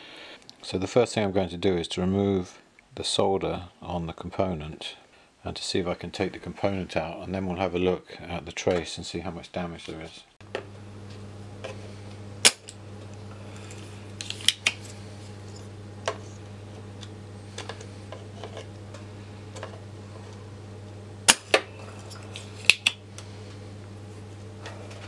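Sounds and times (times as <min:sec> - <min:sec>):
desoldering pump snapping: 0:10.4 - 0:23.6
steady low hum: 0:10.4 - 0:25.0.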